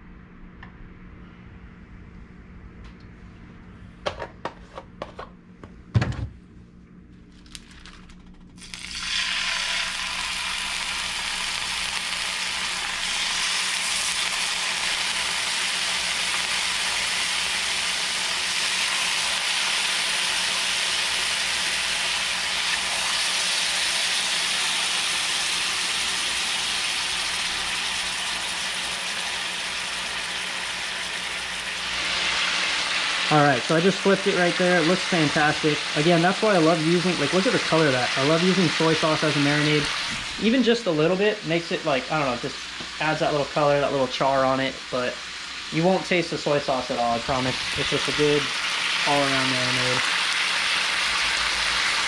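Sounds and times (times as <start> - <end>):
fish fillets sizzling in a pan: 8.6 - 40.4, 46.9 - 52.0.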